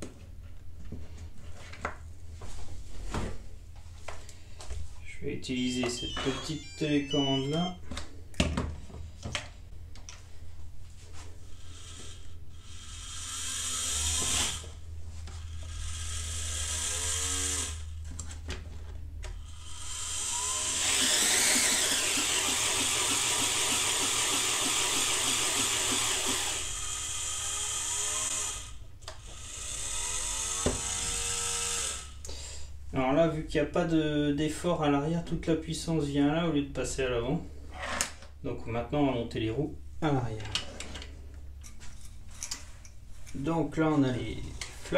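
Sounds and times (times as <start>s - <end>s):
small electric motors whining: 5.6s - 7.7s, 11.4s - 18.0s, 19.4s - 32.2s
gearbox grinding: 20.3s - 26.7s.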